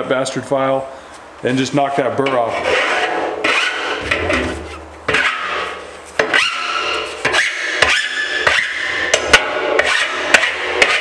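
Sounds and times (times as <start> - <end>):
file rasping on steel: 2.3 - 9.0, 9.8 - 11.0.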